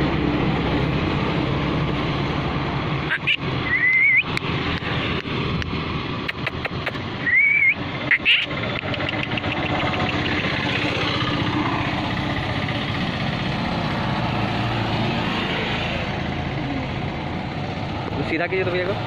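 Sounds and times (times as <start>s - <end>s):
small engine idling: 8.3s - 13.6s.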